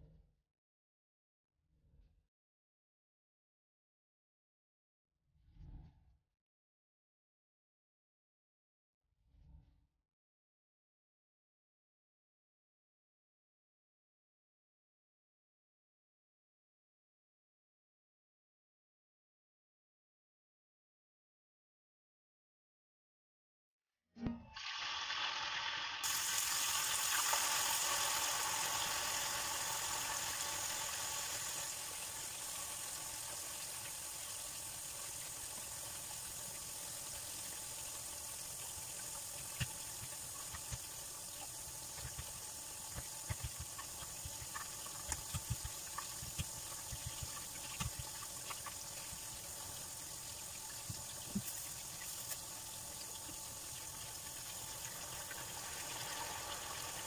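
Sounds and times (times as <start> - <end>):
tofu sizzling in hot oil: 24.6 - 57.0.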